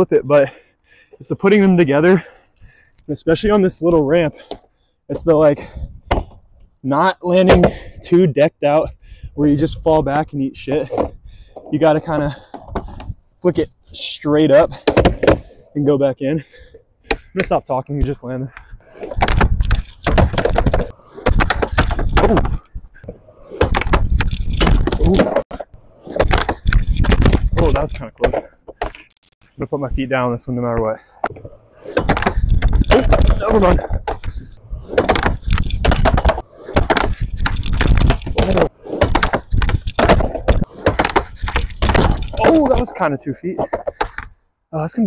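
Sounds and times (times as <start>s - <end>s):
skateboard clacking and slapping: 7.4s - 7.8s, 14.8s - 15.5s, 19.0s - 27.4s, 31.3s - 43.0s
skateboard wheels rumbling on wood: 18.8s - 28.9s, 31.3s - 44.3s.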